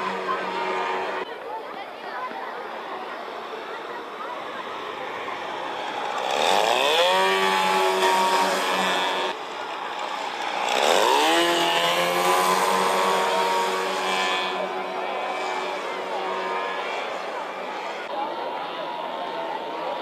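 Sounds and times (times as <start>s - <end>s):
model plane engine buzzing past: 0.0s - 1.3s, 4.3s - 18.1s.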